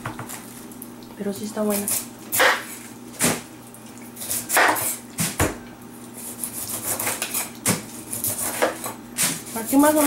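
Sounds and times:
knife cutting pineapple rind: 1.7 - 3.4, 6.1 - 10.0.

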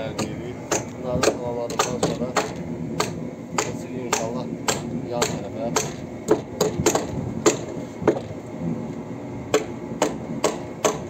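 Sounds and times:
hammer striking nails: 0.2 - 8.3, 9.5 - 11.0.

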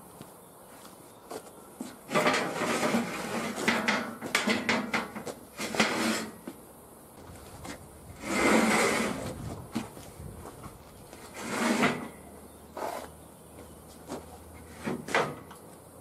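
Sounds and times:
steel plate scraping on steel: 2.1 - 6.4, 8.2 - 9.4, 11.3 - 12.2.

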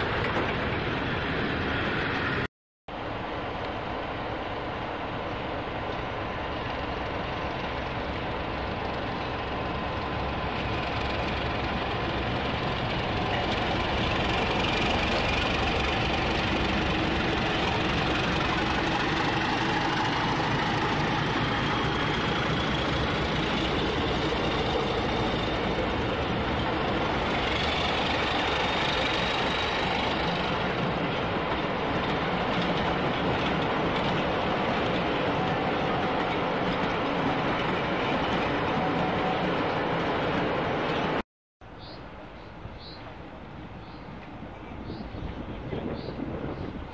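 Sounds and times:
train wheels rolling by: 0.0 - 41.2
locomotive engine under load: 5.0 - 41.2.

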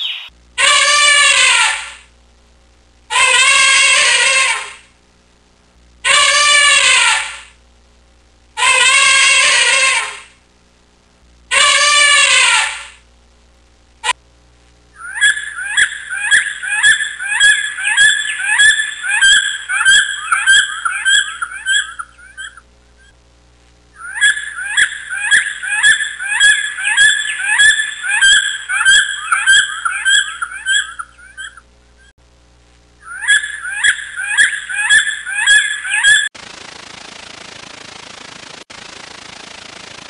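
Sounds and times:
bird calling in sharp notes: 15.0 - 23.1, 24.0 - 32.1, 33.0 - 36.3.

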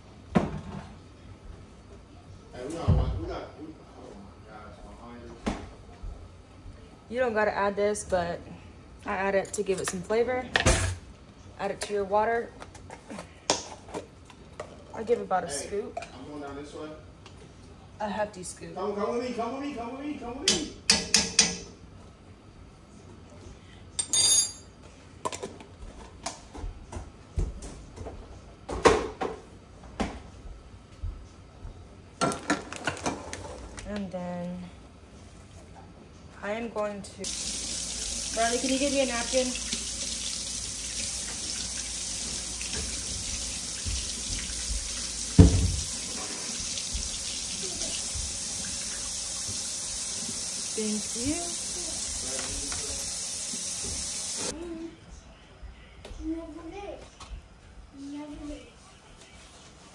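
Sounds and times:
rushing hissing water: 37.3 - 54.5
loud thump: 45.4 - 45.9
refrigerator door opening knock: 45.4 - 45.9.

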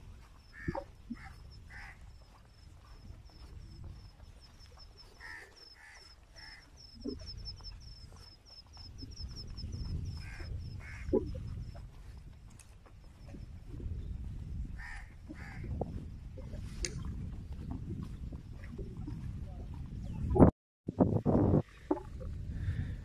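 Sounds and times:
crows cawing: 0.5 - 2.1, 5.1 - 6.8, 10.1 - 11.1, 14.8 - 15.7.

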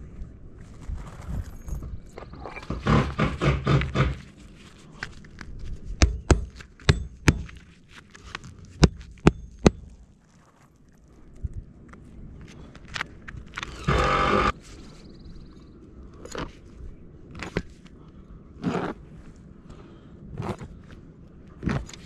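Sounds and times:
metal bar striking roof shingles: 2.5 - 4.3
rough rasping scrape: 13.6 - 14.6.

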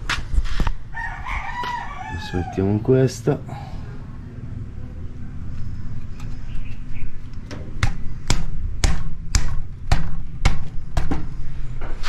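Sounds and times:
low steady hum: 0.0 - 12.0
sharp knocks on metal: 7.5 - 11.3.

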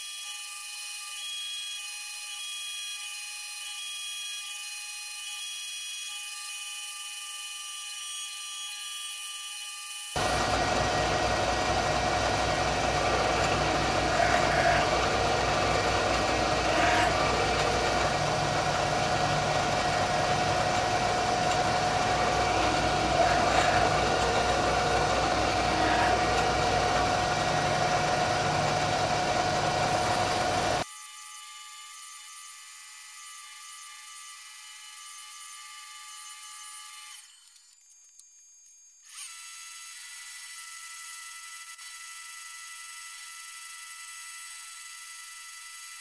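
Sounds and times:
milling machine whining: 10.2 - 30.8.

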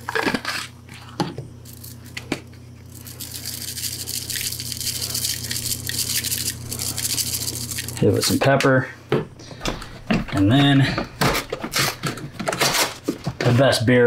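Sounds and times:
low steady hum: 0.0 - 14.0
spices rattling from a shaker: 1.6 - 2.1, 2.8 - 8.4.

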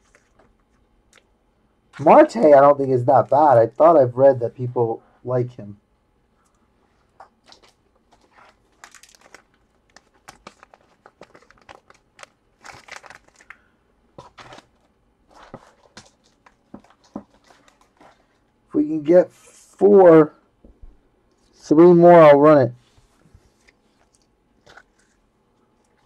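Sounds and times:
packaging crinkling: 0.0 - 1.3, 7.2 - 18.5.

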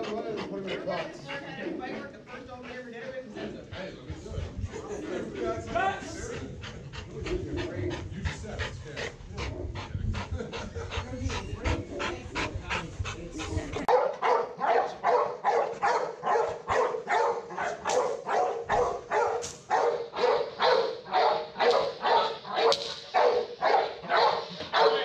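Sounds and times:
dog barking: 13.9 - 25.0.

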